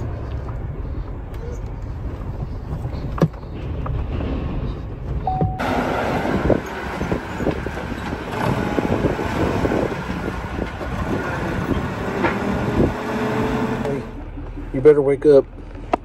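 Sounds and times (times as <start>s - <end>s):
forklift engine running: 3.4s - 16.0s.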